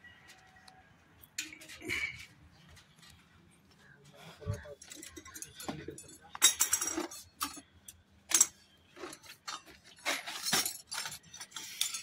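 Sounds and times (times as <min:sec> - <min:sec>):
metal hand tools clattering: 0:04.8 - 0:07.7, 0:08.3 - 0:12.0.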